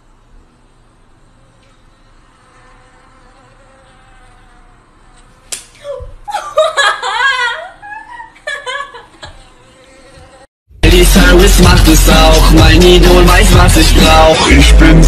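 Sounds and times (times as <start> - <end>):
mosquito whine from phone speaker: 1.2 - 5.5, 9.3 - 10.5
sharp slaps: 5.5 - 5.8.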